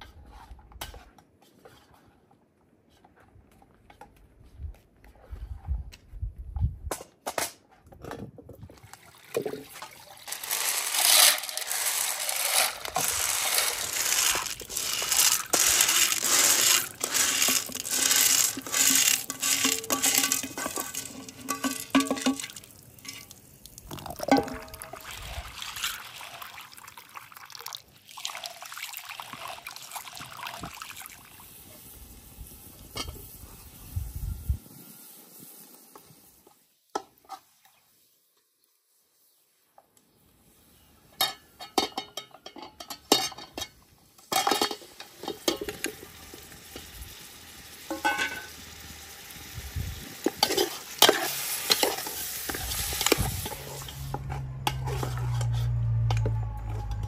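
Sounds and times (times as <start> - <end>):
beans being handled: 10.0 - 22.8.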